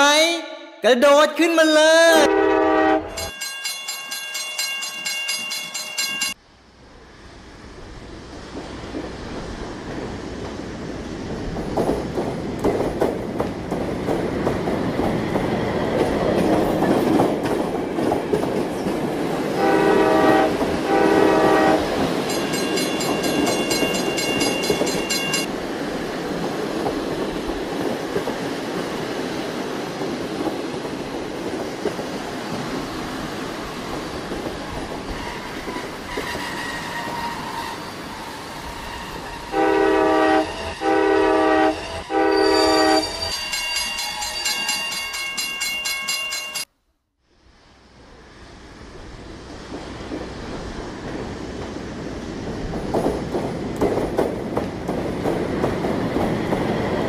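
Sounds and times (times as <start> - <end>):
electronic train horn toots: 2.2 - 3.3, 19.6 - 22.0, 38.7 - 43.2
electronic train whistle: 2.2 - 3.3, 19.6 - 21.9, 38.7 - 43.2
train wheels clattering on rails: 8.4 - 39.6, 49.5 - 57.0.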